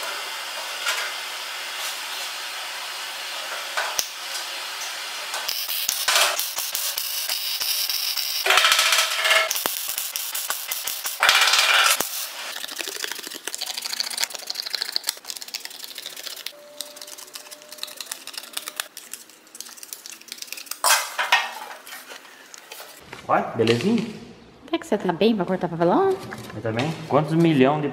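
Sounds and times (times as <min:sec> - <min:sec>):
welder crackling: 0:03.2 - 0:23.0.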